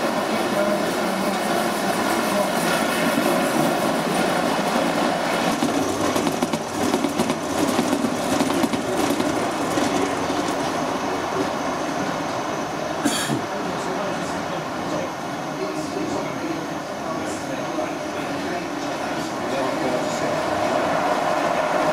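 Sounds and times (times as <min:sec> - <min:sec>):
model train wheels rumbling on rail: 0:00.0 - 0:11.6.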